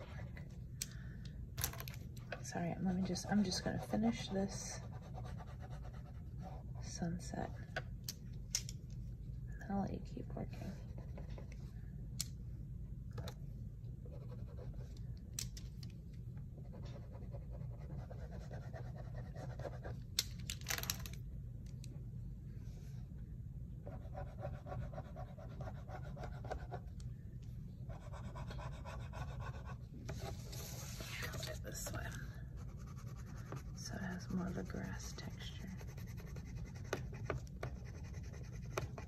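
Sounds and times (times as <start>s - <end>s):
low steady hum: 0.0s - 39.0s
colouring strokes on paper: 27.9s - 39.0s.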